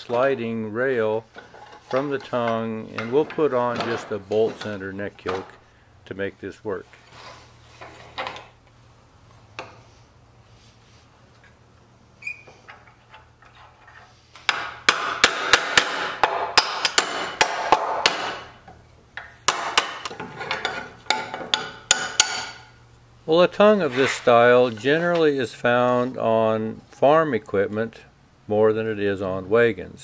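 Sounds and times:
hammer striking steel bolts: 14.5s - 18.6s, 19.2s - 22.7s.

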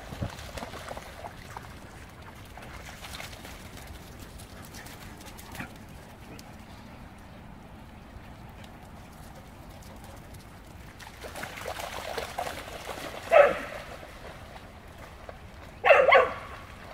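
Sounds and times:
splashing through muddy puddle: 0.0s - 6.0s, 9.6s - 16.9s.

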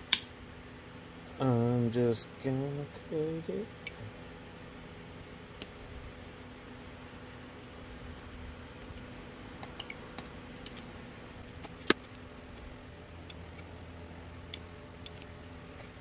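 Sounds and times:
sharp blade click: 0.1s - 0.3s.

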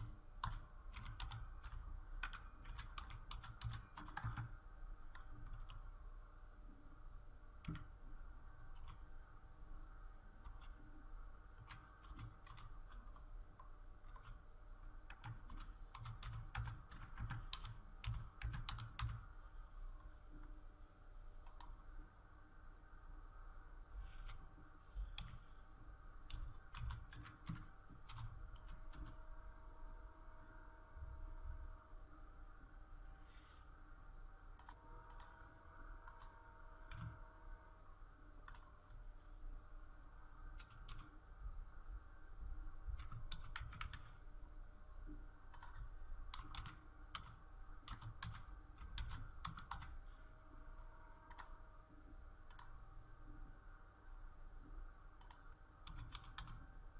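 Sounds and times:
typing on computer keyboard: 0.0s - 4.5s, 7.6s - 7.9s, 11.6s - 14.4s, 15.1s - 19.2s, 26.3s - 29.2s, 36.9s - 37.2s, 40.6s - 41.1s, 43.0s - 44.1s, 45.5s - 50.0s, 55.2s - 56.6s
faint steady hum: 0.0s - 56.9s
mouse clicks: 55.2s - 55.4s.

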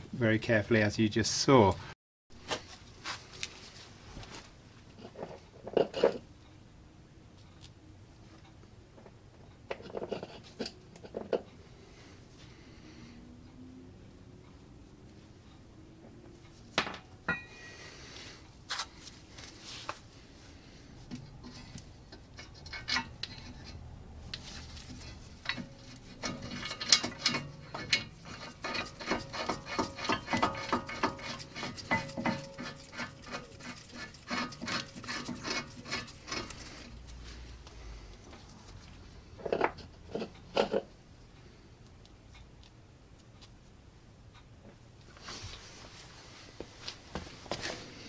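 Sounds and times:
metal clinking and rattling: 24.8s - 36.7s.

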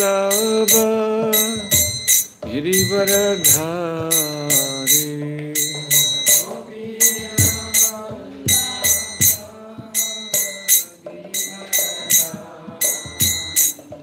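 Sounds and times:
hand cymbals ringing: 0.0s - 14.0s
group of voices chanting: 6.3s - 14.0s.

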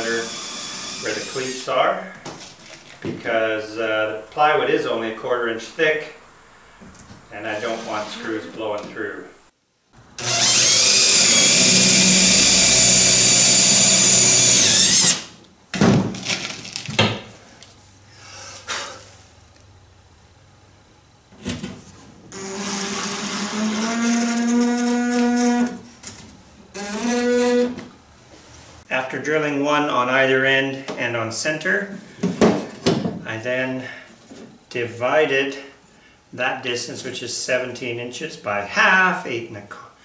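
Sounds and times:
cordless drill drilling wood: 0.0s - 1.6s, 10.2s - 15.3s, 22.4s - 25.2s.

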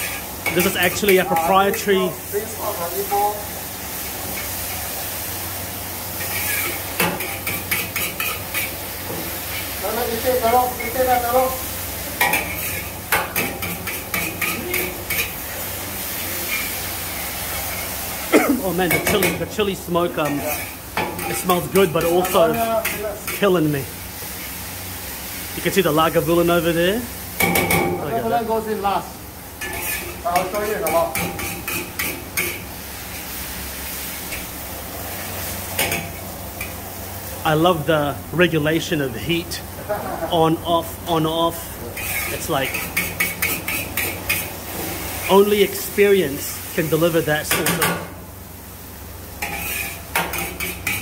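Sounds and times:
food sizzling: 0.0s - 51.0s
gas burner roaring: 0.0s - 51.0s
metal utensil clanking on a wok: 6.2s - 9.3s, 12.2s - 15.4s, 18.8s - 19.4s, 27.4s - 28.0s, 29.6s - 32.7s, 35.8s - 36.8s, 42.0s - 44.5s, 47.4s - 48.1s, 49.4s - 51.0s.

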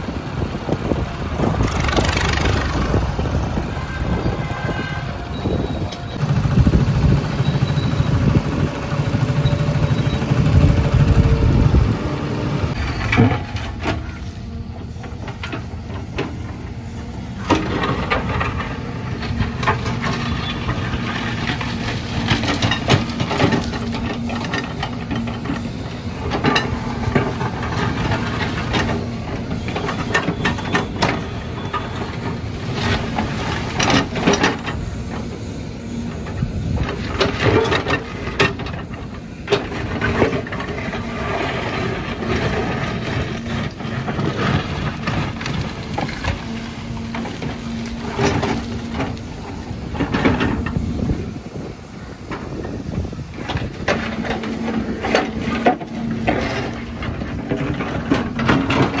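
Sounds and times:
diesel engine running hard: 0.0s - 59.0s
backhoe bucket scraping concrete: 36.6s - 51.7s.

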